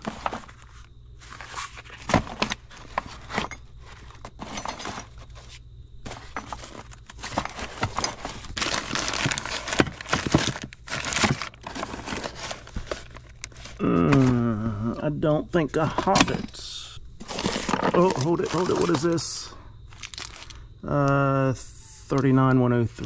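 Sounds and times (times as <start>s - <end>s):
packaging rustling and crinkling: 0.0s - 14.4s, 17.2s - 20.6s.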